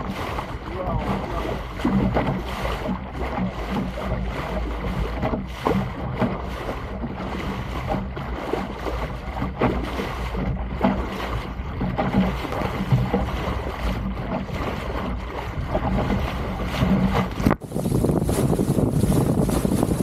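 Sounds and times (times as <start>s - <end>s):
water splashing against boat bow: 0.0s - 20.0s
wind buffeting microphone: 0.0s - 20.0s.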